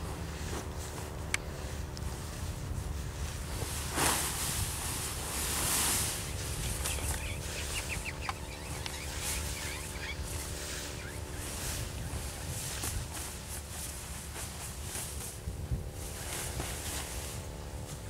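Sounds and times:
parachute canopy rustling: 0:00.0 - 0:18.0
steady low hum: 0:00.0 - 0:18.0
bird chirps: 0:06.1 - 0:12.9.

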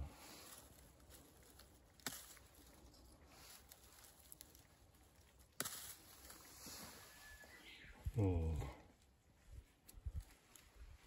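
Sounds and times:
fern stalk snapping: 0:00.6 - 0:06.4.

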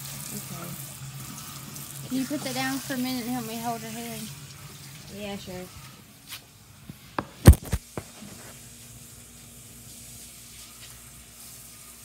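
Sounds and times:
sharp thump: 0:07.2 - 0:08.1
camera handling clunks: 0:07.4 - 0:07.8.

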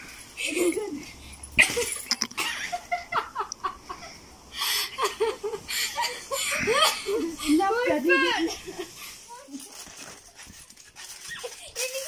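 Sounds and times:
people giggling and laughing: 0:00.4 - 0:09.2.

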